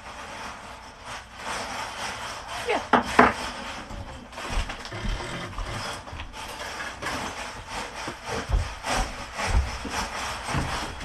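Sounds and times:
footsteps on wooden floor: 0:02.9 - 0:11.0.

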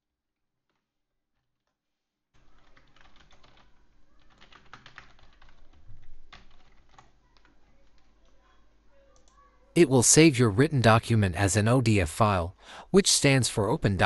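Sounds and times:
computer keyboard keys clicking: 0:02.5 - 0:08.4.

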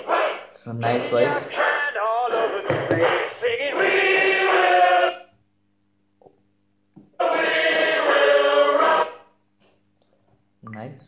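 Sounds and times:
choir singing through small speaker: 0:00.0 - 0:05.3, 0:07.1 - 0:09.4.

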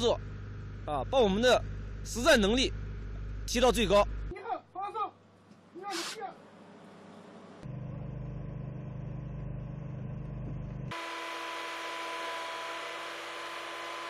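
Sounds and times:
truck engine and machinery whine: 0:00.0 - 0:04.3, 0:06.6 - 0:14.0
vehicle engine rumble inside cabin: 0:07.6 - 0:10.9.

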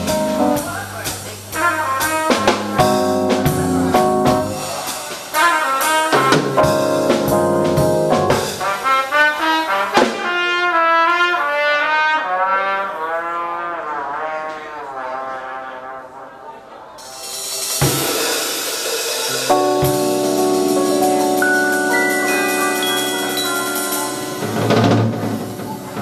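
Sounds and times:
cymbal and drum strokes: 0:00.0 - 0:10.4, 0:17.0 - 0:26.0
jazz quartet playing: 0:00.0 - 0:16.4, 0:17.0 - 0:26.0.

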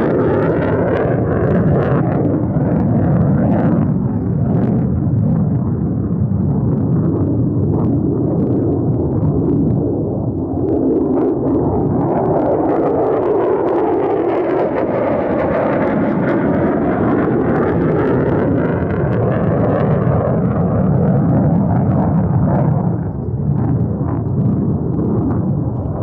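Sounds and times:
jet roaring past: 0:00.0 - 0:26.0.

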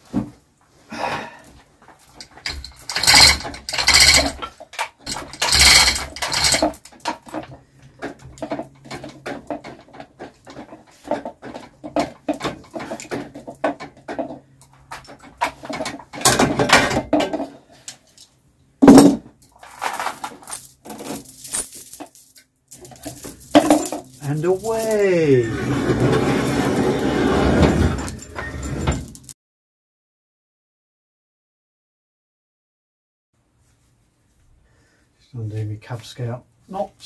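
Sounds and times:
steel chains clinking and rattling: 0:02.0 - 0:17.5, 0:18.8 - 0:29.3.

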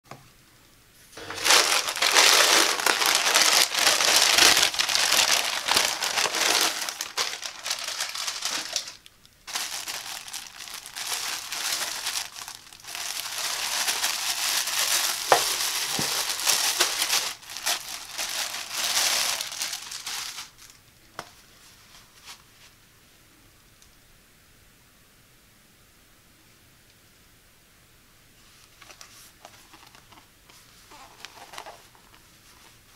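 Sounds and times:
plastic packaging crinkling: 0:01.2 - 0:20.9, 0:28.8 - 0:32.8.

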